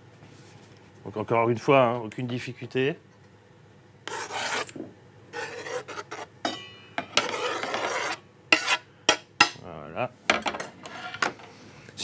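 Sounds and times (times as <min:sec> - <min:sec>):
knife scraping wooden board: 0:04.1 - 0:06.3, 0:07.2 - 0:08.8.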